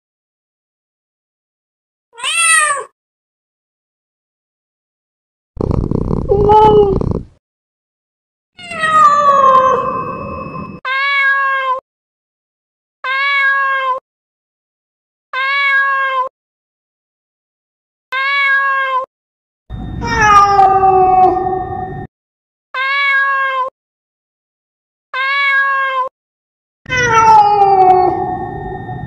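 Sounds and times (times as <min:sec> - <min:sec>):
cat meowing: 0:02.2 - 0:02.9, 0:05.6 - 0:07.2, 0:08.6 - 0:11.8, 0:13.0 - 0:14.0, 0:15.4 - 0:16.3, 0:18.2 - 0:19.1, 0:20.0 - 0:21.6, 0:22.8 - 0:23.7, 0:25.2 - 0:26.1, 0:26.9 - 0:28.5.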